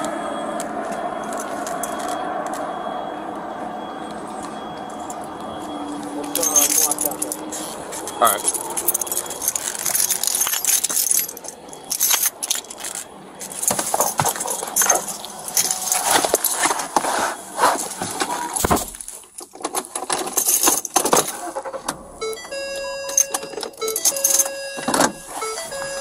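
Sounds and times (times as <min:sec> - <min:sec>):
gear rustling and jangling: 0:01.2 - 0:02.2, 0:06.0 - 0:22.2, 0:23.0 - 0:26.0.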